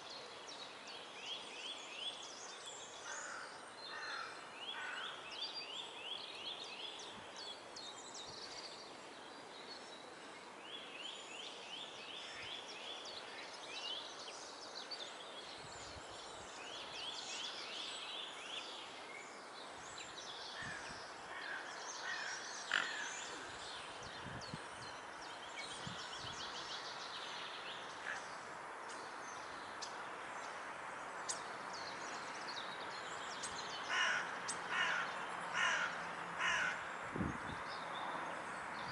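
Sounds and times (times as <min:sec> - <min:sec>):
steady background hiss: 0:00.0 - 0:38.9.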